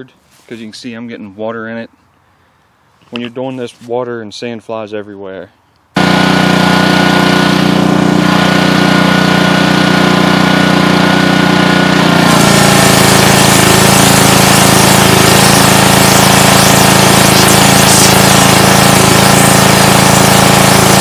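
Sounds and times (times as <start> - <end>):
pressure washer engine running: 6.0 - 21.0
sandblaster nozzle hissing: 12.0 - 21.0.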